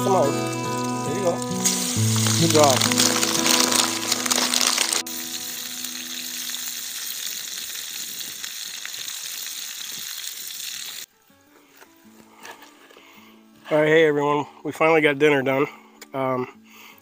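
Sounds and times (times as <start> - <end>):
steaks sizzling in a skillet: 0.0 - 11.1.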